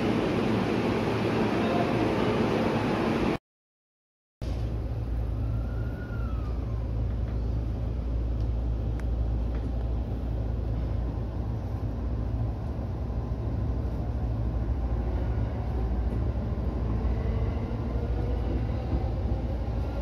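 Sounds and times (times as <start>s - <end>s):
train wheels rumbling on rails: 5.8s - 20.0s.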